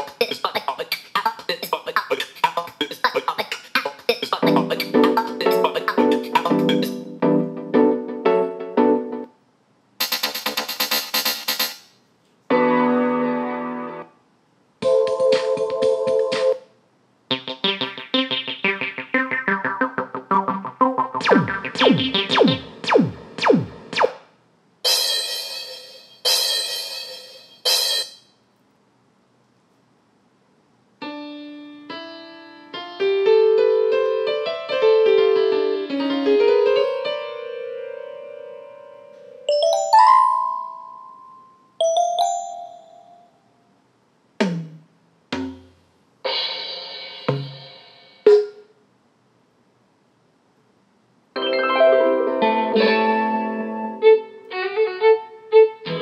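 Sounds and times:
electronic zaps falling in pitch: 21.2s - 24.3s
cymbal crash: 24.8s - 28.3s
ringing xylophone notes: 39.5s - 43.3s.

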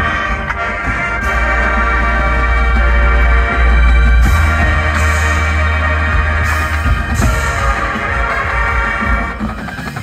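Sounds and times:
marching band playing: 0.0s - 10.0s.

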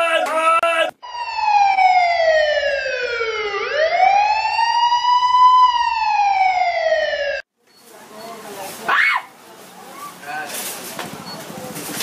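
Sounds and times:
siren wailing: 1.0s - 7.4s.

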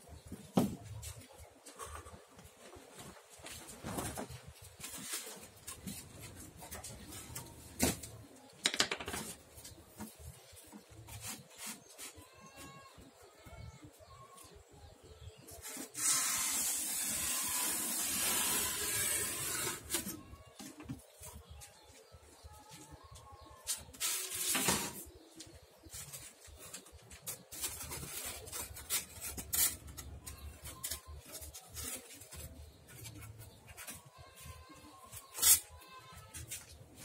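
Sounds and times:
knife cutting styrofoam: 15.6s - 20.2s, 35.1s - 35.8s.

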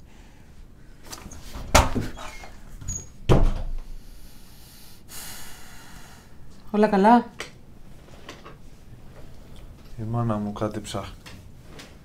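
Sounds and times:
door banging shut: 1.6s - 2.3s, 2.9s - 3.8s.

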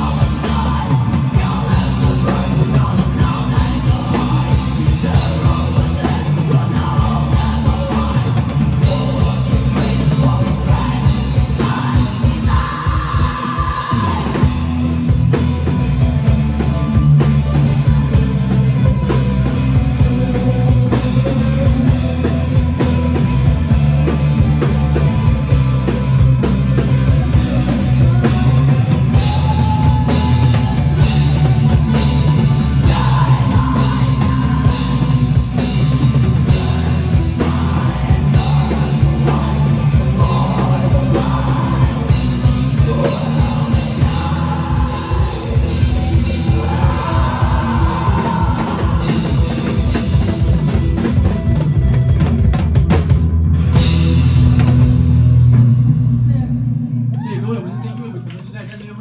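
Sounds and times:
person singing: 0.0s - 15.0s, 16.6s - 23.3s, 24.0s - 51.3s
rock band playing: 0.0s - 58.8s.

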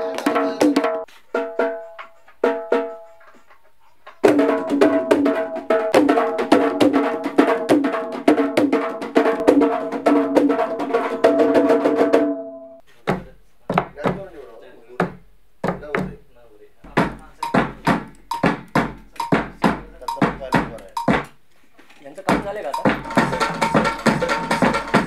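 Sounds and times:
barrel drum strikes: 16.9s - 21.3s, 22.3s - 25.0s
deep drum hits: 16.9s - 21.3s, 22.3s - 25.0s.

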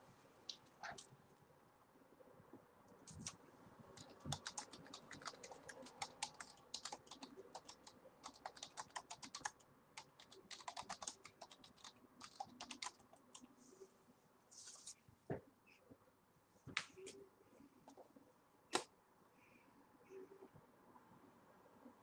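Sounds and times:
keyboard typing: 4.0s - 13.5s.

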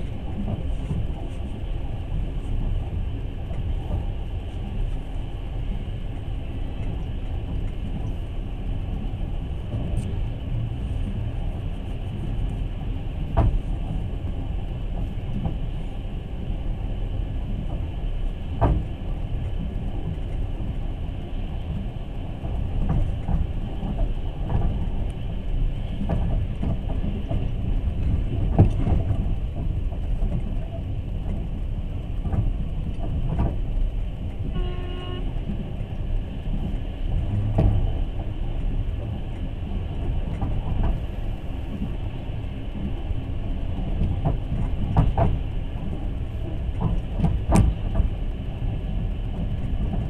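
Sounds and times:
train rumbling: 0.0s - 50.0s
horn-like pitched tone: 34.5s - 35.3s.

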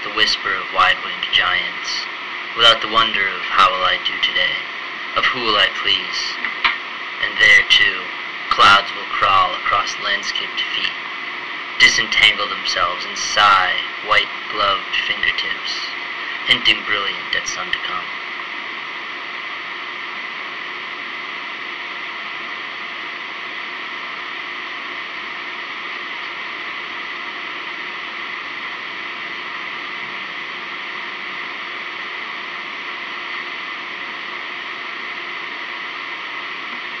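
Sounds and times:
faint high hum: 0.0s - 37.0s.

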